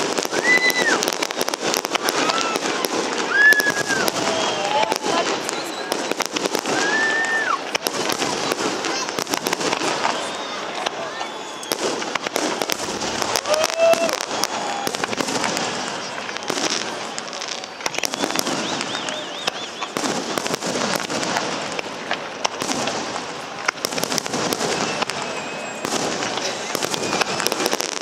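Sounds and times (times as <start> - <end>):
firework crackling: 0.0 - 28.0
firework shells bursting: 0.0 - 28.0.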